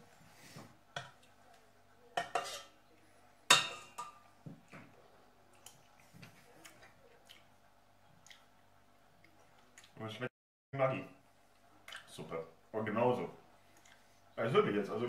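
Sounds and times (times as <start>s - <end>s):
spoon and pots clinking: 2.2s - 2.8s, 3.5s - 4.2s.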